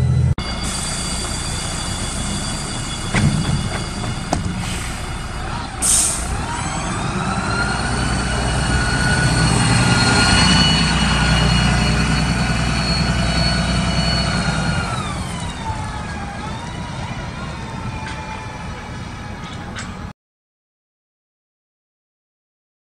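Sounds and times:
bus diesel engine and whine: 0.0s - 20.1s
air brake hiss: 0.6s - 3.1s, 3.8s - 6.5s.

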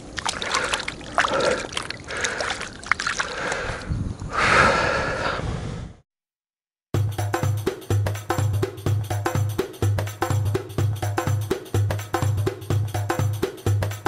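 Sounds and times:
water splashing and trickling: 0.0s - 3.9s.

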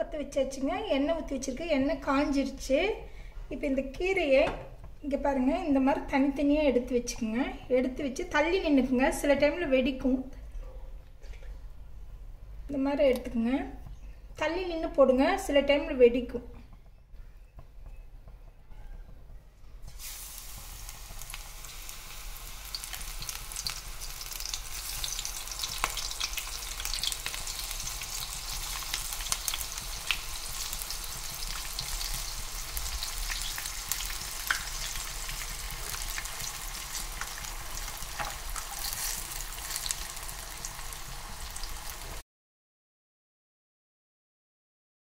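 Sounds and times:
oil sizzling and popping: 19.8s - 42.2s.

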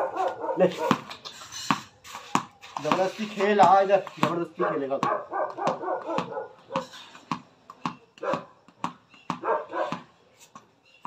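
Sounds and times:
dog barking and yipping: 0.0s - 1.1s, 4.6s - 7.0s, 8.2s - 8.6s, 9.4s - 10.1s
football bouncing on concrete: 0.1s - 11.0s.

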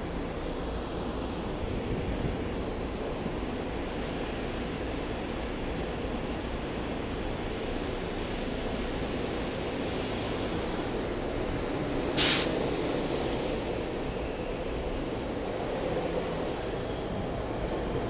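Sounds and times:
electric train rumbling past: 0.0s - 18.0s
compressed air hiss: 12.2s - 12.7s.

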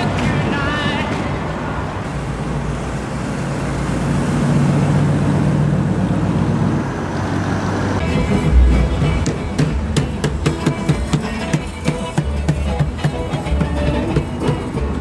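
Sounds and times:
car engine rumbling: 0.0s - 15.0s
music: 8.0s - 15.0s.

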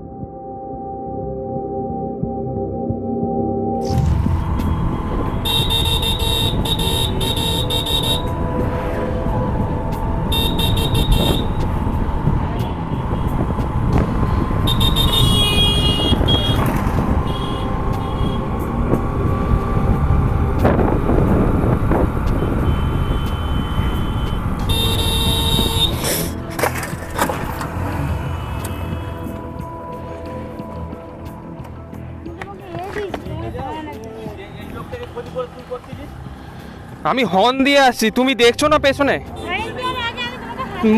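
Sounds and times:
motorcycle engine and road rumble: 3.8s - 33.4s
motorcycle horn beeping: 5.4s - 8.4s, 10.3s - 11.6s, 14.6s - 18.5s, 22.4s - 26.4s.

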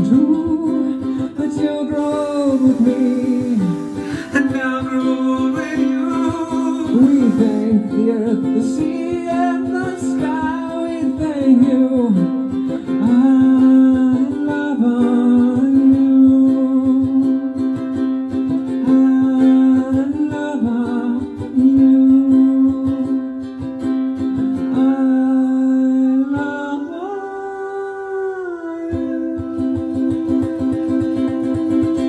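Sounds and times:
strummed ukulele: 0.0s - 32.0s
man humming: 2.0s - 8.0s.

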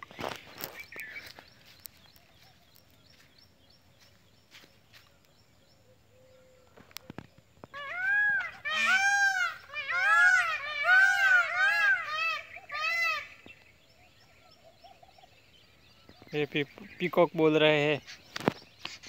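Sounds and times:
footsteps walking: 0.0s - 5.4s
peafowl calling: 5.8s - 15.4s.

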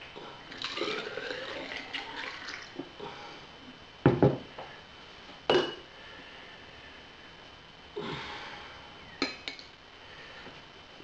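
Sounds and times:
liquid trickling into a glass cylinder: 0.5s - 2.8s.

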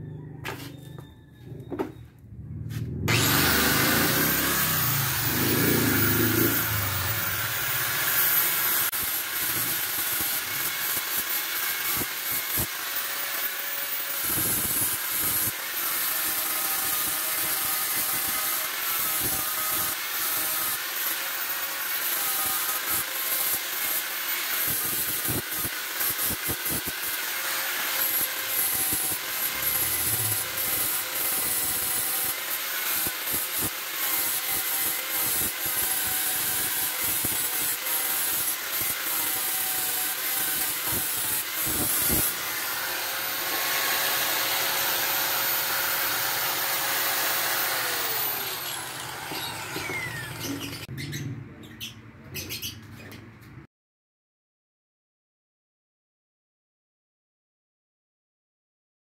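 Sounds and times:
angle grinder grinding metal: 2.8s - 50.9s.

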